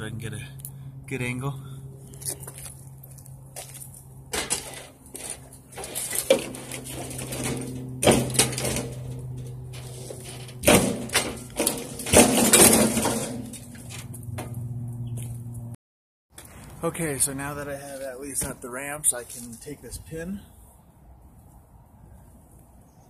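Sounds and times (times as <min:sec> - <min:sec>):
steady low hum: 0:00.0 - 0:15.8
mower clanking on metal ramps: 0:04.3 - 0:14.9.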